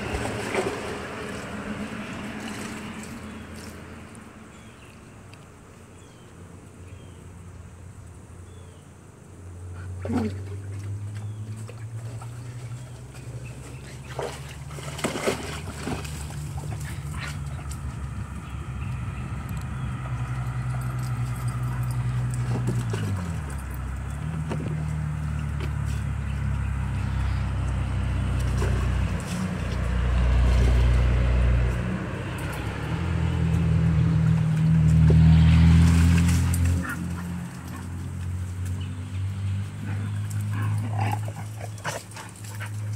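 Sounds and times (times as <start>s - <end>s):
motor engine droning: 9.4s - 42.9s.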